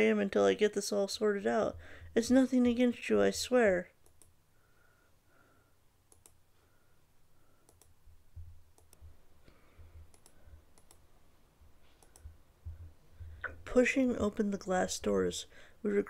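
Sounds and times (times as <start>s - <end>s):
faint clicks: 4.0s - 4.3s, 6.1s - 6.4s, 7.6s - 8.0s, 8.7s - 11.0s, 12.0s - 12.4s
soft low thumps: 8.1s - 10.7s, 11.6s - 13.5s.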